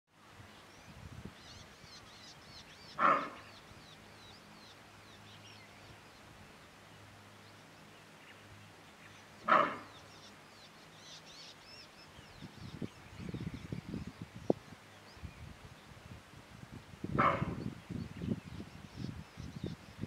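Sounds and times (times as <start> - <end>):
birds chirping faintly: 0.3 - 16.2
antelope alarm barks: 3.0 - 3.5, 9.4 - 10.0, 17.2 - 17.6.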